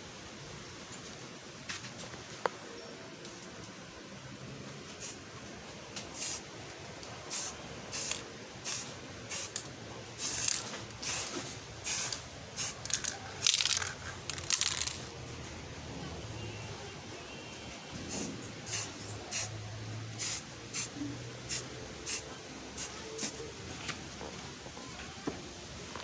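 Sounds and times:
spray can hissing bursts: 0:06.1 - 0:06.4, 0:07.3 - 0:09.6, 0:10.2 - 0:15.0, 0:18.1 - 0:19.5, 0:20.2 - 0:22.2, 0:22.8 - 0:23.4.

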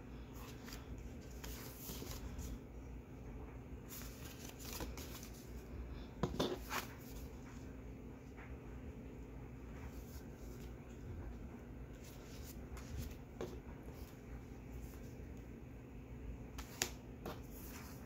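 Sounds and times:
paper cards rustling on a table: 0:00.3 - 0:02.6, 0:03.8 - 0:07.7, 0:11.9 - 0:15.2, 0:16.5 - 0:18.0.

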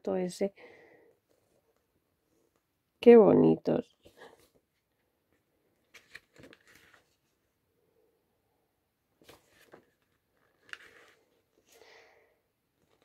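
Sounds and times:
paper pages rustling: 0:05.8 - 0:07.4, 0:09.2 - 0:11.8, 0:12.8 - 0:13.0.

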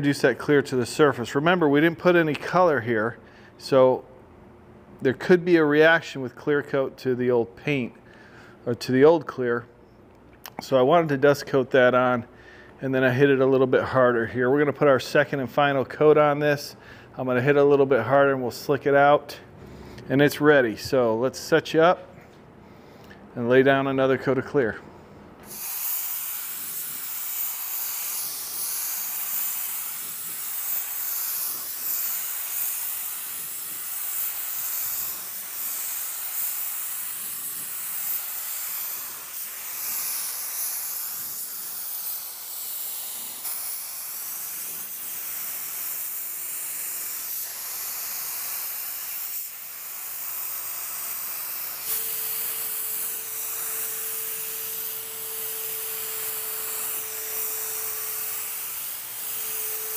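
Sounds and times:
spray gun hissing: 0:25.4 - 0:59.9.

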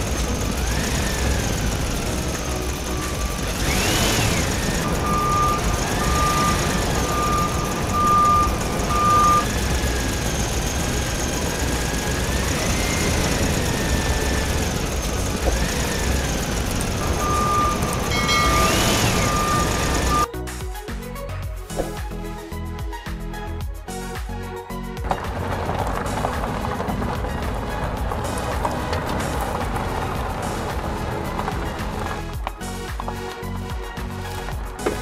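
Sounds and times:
diesel engine revving: 0:00.0 - 0:20.3, 0:25.0 - 0:35.0
reversing alarm beeps: 0:03.2 - 0:14.6, 0:15.6 - 0:20.3.

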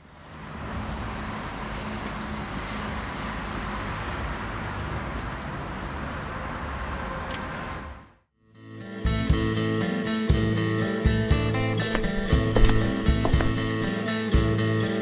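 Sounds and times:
road traffic rush: 0:00.0 - 0:08.3, 0:11.6 - 0:13.9.

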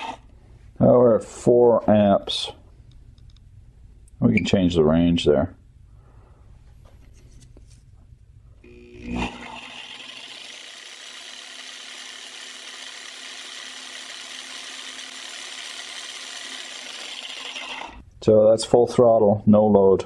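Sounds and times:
reciprocating saw motor running: 0:00.0 - 0:00.2, 0:08.6 - 0:18.0.

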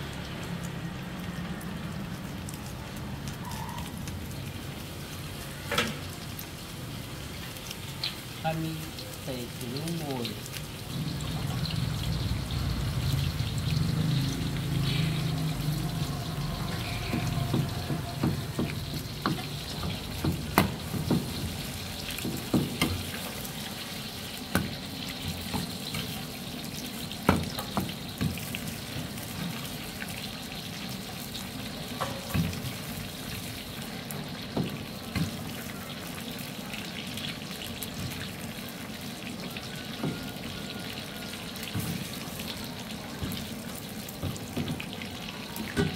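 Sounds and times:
meat deep-frying in oil: 0:00.0 - 0:45.9.

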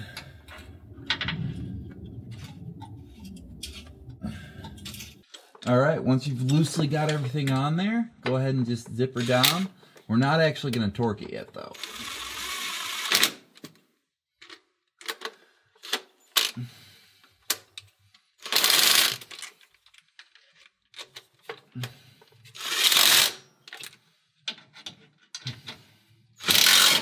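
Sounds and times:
impact driver running bolts: 0:26.4 - 0:27.0.

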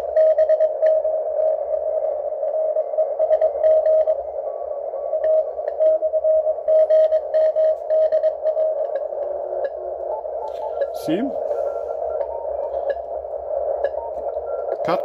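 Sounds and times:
radio band hiss: 0:00.0 - 0:15.0
morse code tone: 0:02.8 - 0:15.0.

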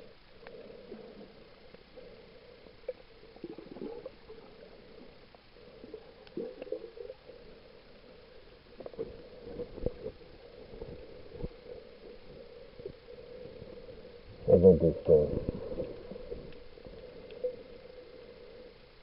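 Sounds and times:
underwater low hum: 0:00.0 - 0:19.0
muffled underwater gurgles and thumps: 0:14.3 - 0:17.0.

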